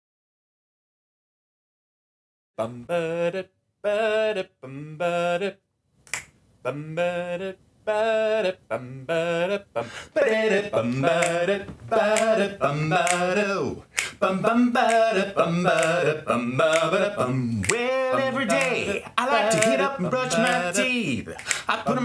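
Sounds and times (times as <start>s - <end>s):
layered male a cappella singing: 2.6s - 5.6s, 6.7s - 22.0s
finger snaps: 6.1s - 6.4s, 10.9s - 11.4s, 12.1s - 12.4s, 13.0s - 13.3s, 13.9s - 14.2s, 21.4s - 21.7s.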